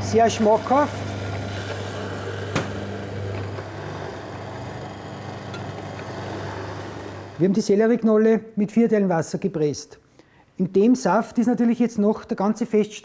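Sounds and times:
electric juicer motor humming: 0:00.0 - 0:07.4.

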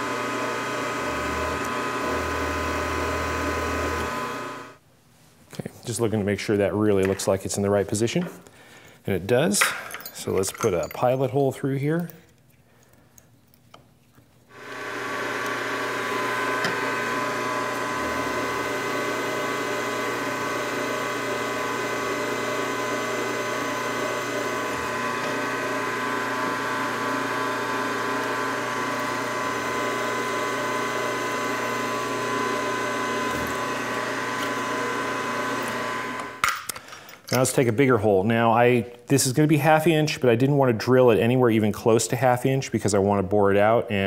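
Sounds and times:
drill cutting into steel: 0:00.0 - 0:04.8, 0:14.5 - 0:36.5
milling machine spindle whine: 0:00.0 - 0:04.8, 0:14.6 - 0:36.4.

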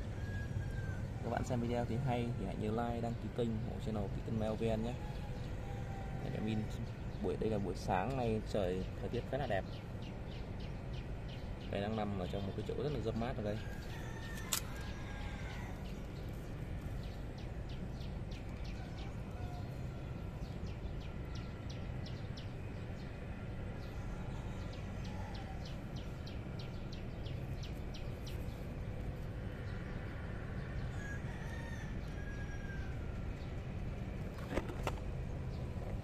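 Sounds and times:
steady low background noise: 0:00.0 - 0:36.0
chickens calling: 0:10.1 - 0:21.5, 0:23.3 - 0:29.5.

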